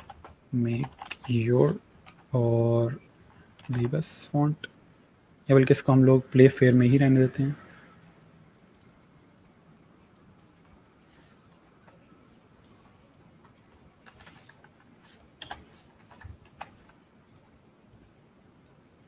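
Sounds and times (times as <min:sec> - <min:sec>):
computer keyboard clicks: 0:00.0 - 0:01.4, 0:03.6 - 0:04.0, 0:15.4 - 0:18.1
computer mouse clicks: 0:07.6 - 0:10.8, 0:11.8 - 0:18.8.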